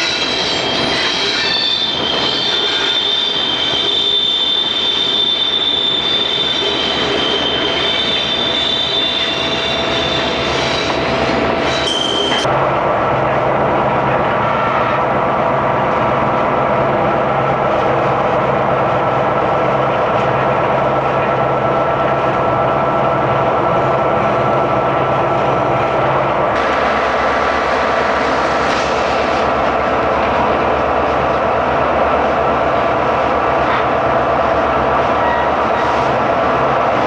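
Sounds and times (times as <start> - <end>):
high wheel squeal: 0.0 - 12.5
locomotive engine drone: 0.0 - 37.0
rumble of train cars: 0.0 - 37.0.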